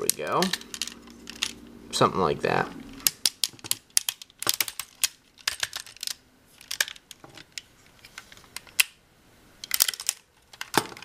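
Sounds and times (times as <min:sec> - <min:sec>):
plastic toy joints clicking: 0:03.0 - 0:07.7, 0:09.6 - 0:11.0.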